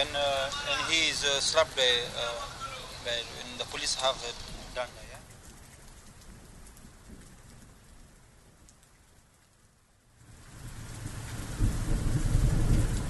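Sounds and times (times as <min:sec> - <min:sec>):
rain: 0:00.0 - 0:13.0
low rumble: 0:10.2 - 0:13.0.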